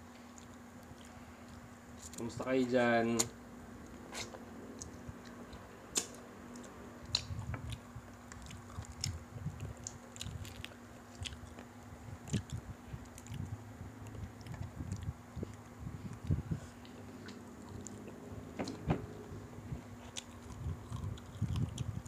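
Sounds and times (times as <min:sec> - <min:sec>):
people chewing food: 0:00.2 - 0:02.2, 0:04.1 - 0:18.8, 0:19.7 - 0:22.0
mouth clicks and crunches: 0:04.1 - 0:18.2, 0:20.0 - 0:22.0.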